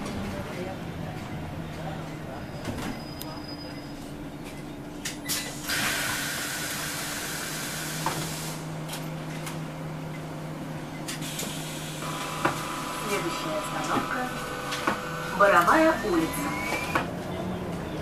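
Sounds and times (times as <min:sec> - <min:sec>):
bus air system hiss: 0:05.3 - 0:08.7, 0:11.2 - 0:12.1.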